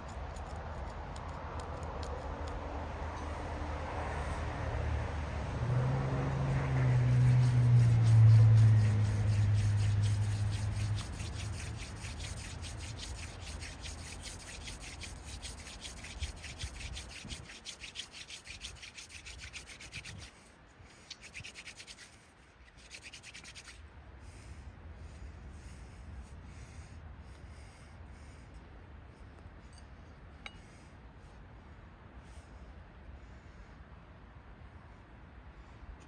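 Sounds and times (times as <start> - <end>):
low hum: 0.0 - 27.4
wood-on-wood rubbing: 6.8 - 23.8.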